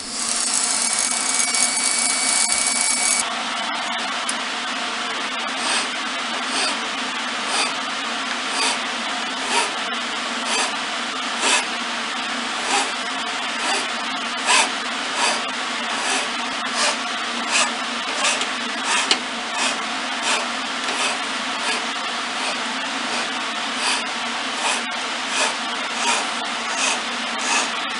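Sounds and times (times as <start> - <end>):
file rasping on wood: 5.5 - 6.8, 7.4 - 7.8, 8.5 - 8.8, 9.4 - 9.8, 10.4 - 10.8, 11.4 - 11.7, 12.6 - 13.0, 13.6 - 27.8.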